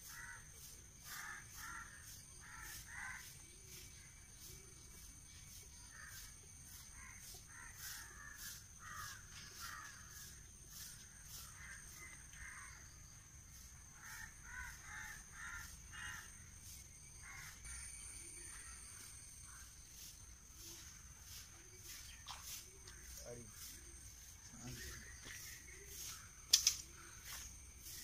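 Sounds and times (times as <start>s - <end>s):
crows cawing: 0.0s - 3.3s, 6.9s - 13.1s, 13.8s - 16.5s, 17.1s - 17.9s
high-pitched insect drone: 0.0s - 28.0s.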